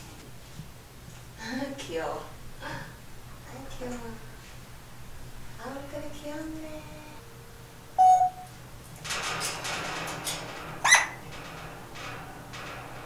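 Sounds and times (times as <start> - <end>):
parrot whistle: 8.0 - 8.5.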